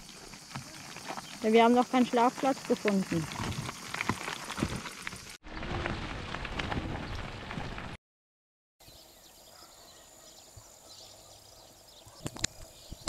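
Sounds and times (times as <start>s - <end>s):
faint rural background: 0.0s - 5.3s, 8.8s - 13.0s
bicycle tyres rolling on gravel: 0.0s - 8.0s.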